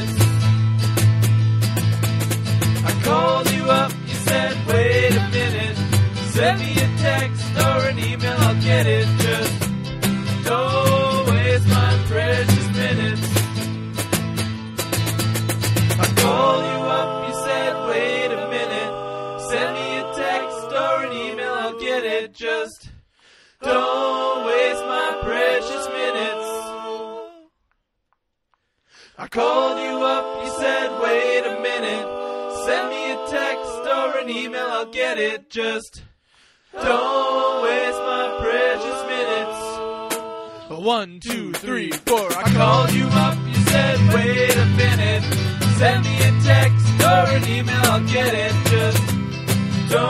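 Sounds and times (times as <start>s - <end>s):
voices singing in harmony: 2.8s - 9.6s, 10.3s - 13.4s, 16.0s - 23.0s, 23.6s - 27.5s, 29.2s - 36.0s, 36.7s - 40.8s, 42.5s - 49.1s, 49.8s - 50.0s.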